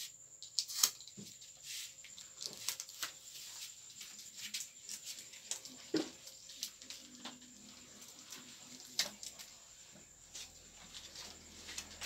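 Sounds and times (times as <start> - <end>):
faint steady hum: 0.0 - 12.0
paper rustling: 0.7 - 9.7.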